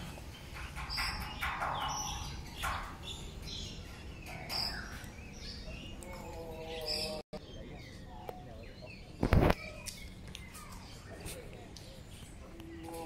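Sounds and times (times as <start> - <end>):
birds chirping: 0.0 - 13.0.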